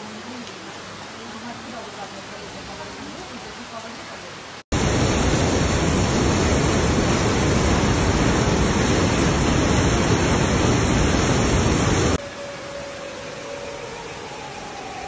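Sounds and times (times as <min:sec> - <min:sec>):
flooded river rushing: 0:04.8 - 0:12.2.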